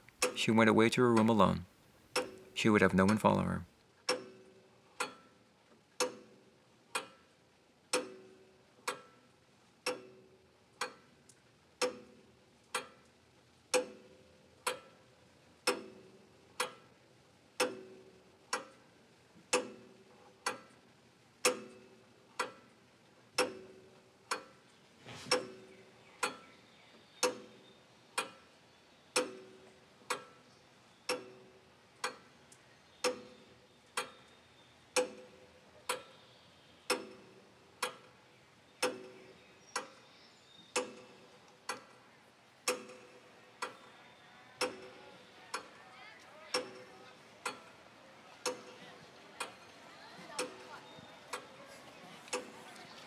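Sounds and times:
clock ticking: 0.0 - 7.3, 7.9 - 13.1, 13.7 - 15.0, 15.6 - 17.0, 17.6 - 22.7, 23.3 - 24.7, 25.3 - 26.5, 27.2 - 28.5, 29.1 - 30.5, 31.1 - 32.4, 33.0 - 36.2, 36.9 - 38.2, 38.8 - 40.1, 40.7 - 42.0, 42.6 - 43.9, 44.6 - 45.8, 46.5 - 47.8, 48.4 - 51.6, 52.3 - 52.8.

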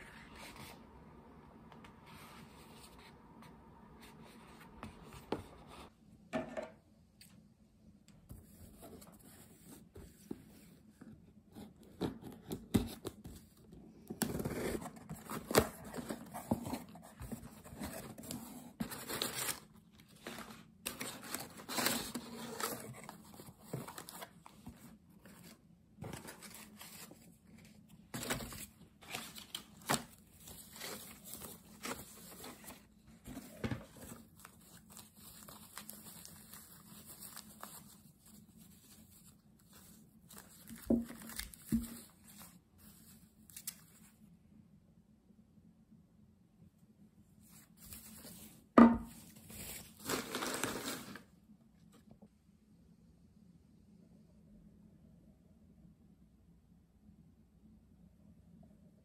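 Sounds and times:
tissue paper rustling: 14.8 - 44.1, 47.4 - 51.3.

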